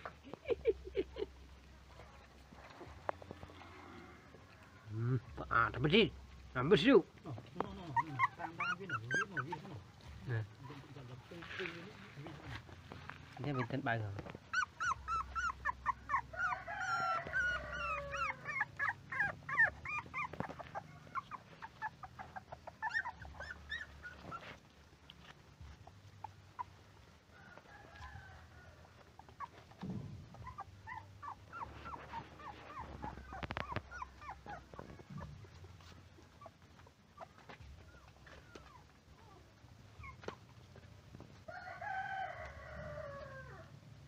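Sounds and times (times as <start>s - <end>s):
puppies whimpering and squealing: 5.4s - 11.4s, 12.0s - 27.3s, 28.8s - 41.0s.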